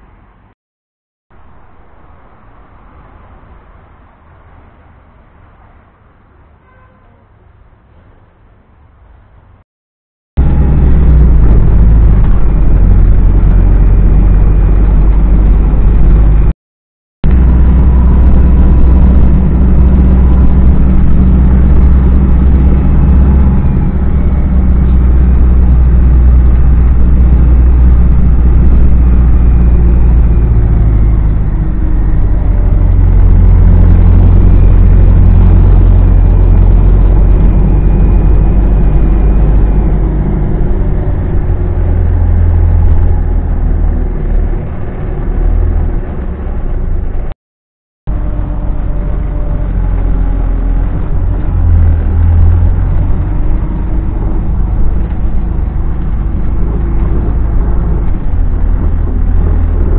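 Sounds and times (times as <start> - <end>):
bus engine droning: 0.0 - 0.6, 1.3 - 9.6, 10.4 - 16.5, 17.2 - 47.4, 48.1 - 59.9.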